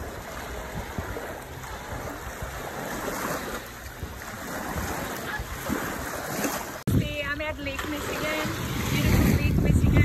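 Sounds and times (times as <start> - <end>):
waves washing onto shore: 0.0 - 6.9, 7.6 - 10.0
wind buffeting microphone: 0.0 - 10.0.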